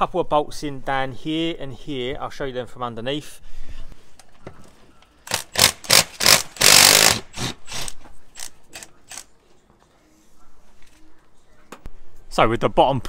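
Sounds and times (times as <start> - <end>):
impact wrench hammering: 5.3 - 9.2.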